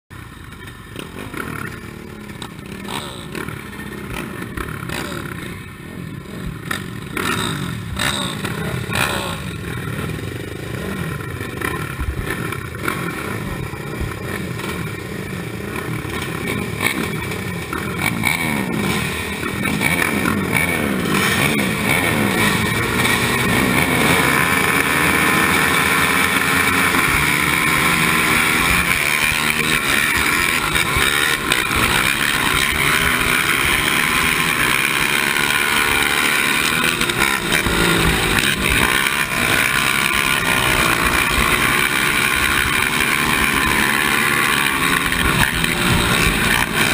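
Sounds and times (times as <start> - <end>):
racing quad engines revving: 0.1 - 46.9.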